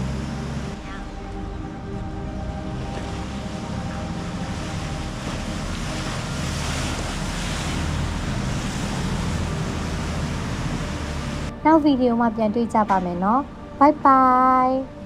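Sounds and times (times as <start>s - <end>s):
rush of churning wake: 0.0s - 11.5s
boat engine hum: 0.0s - 15.0s.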